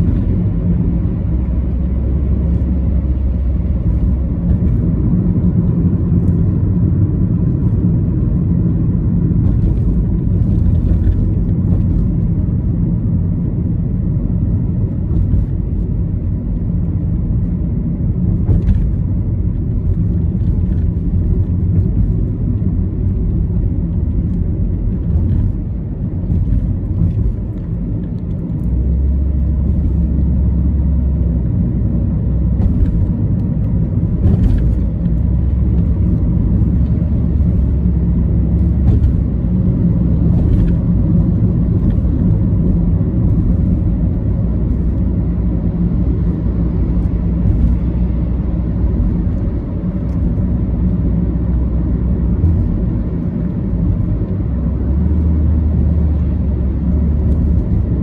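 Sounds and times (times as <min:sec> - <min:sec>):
car interior road rumble: 0:00.0 - 0:58.0.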